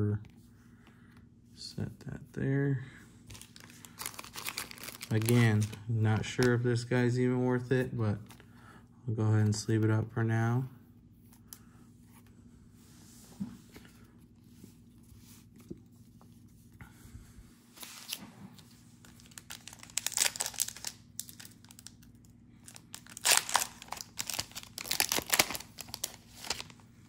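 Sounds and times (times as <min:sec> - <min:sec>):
plastic wrapper tearing and crinkling: 0:03.3 - 0:06.5, 0:19.0 - 0:26.8.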